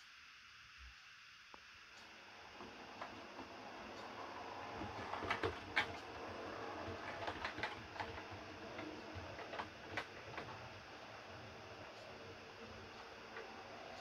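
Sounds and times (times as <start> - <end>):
model train wheels clicking on rails: 2.0 - 14.0.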